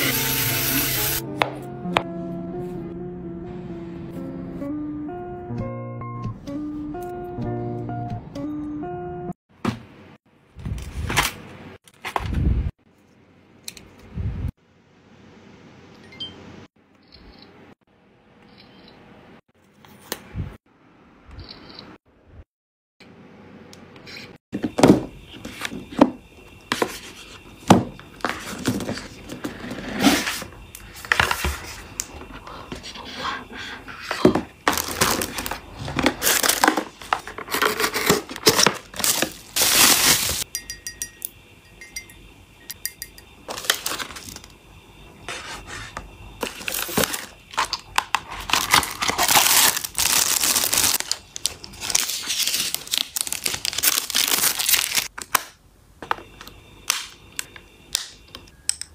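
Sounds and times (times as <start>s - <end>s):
cardboard and plastic crinkling: 26.7s - 32.1s, 34.1s - 40.4s, 43.5s - 44.5s, 46.4s - 55.3s
plastic film peeling: 46.6s - 55.4s.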